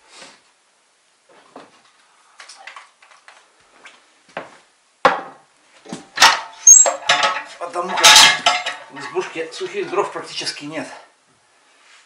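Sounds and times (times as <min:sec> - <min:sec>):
knocks on wooden floor: 0:05.0 - 0:06.0.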